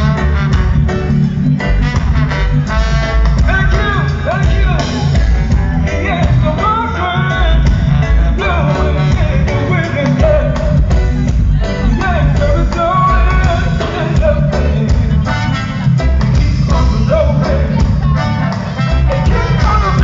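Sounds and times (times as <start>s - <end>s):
ska band playing: 0.0s - 20.0s
man singing into microphone: 5.8s - 10.9s, 11.8s - 15.4s, 16.4s - 18.0s, 19.1s - 20.0s.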